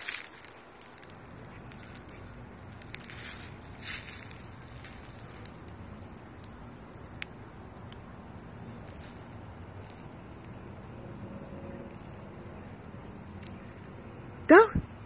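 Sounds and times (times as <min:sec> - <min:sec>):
footsteps crunching through dry leaves: 0:00.0 - 0:07.0, 0:08.5 - 0:12.2.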